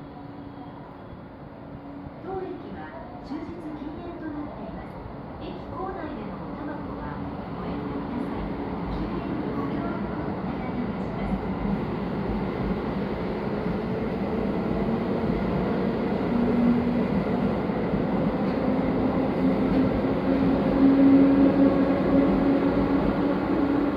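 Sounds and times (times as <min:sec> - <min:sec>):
train wheels and running gear: 0:13.5 - 0:23.9.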